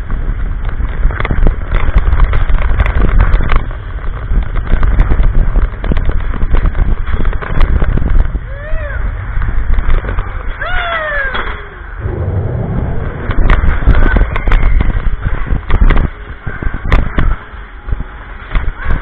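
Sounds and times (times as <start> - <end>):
roller coaster rumbling and clattering: 0.0 - 19.0.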